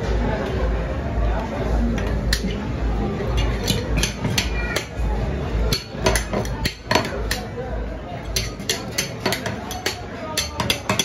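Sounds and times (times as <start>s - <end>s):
metal spatulas tapping: 2.0s - 2.6s, 3.4s - 5.0s, 5.7s - 7.6s, 8.2s - 11.0s.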